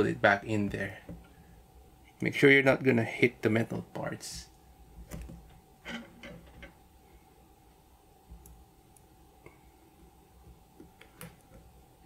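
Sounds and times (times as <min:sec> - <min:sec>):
faint plastic parts clicking: 0:03.9 - 0:06.8, 0:08.3 - 0:11.8.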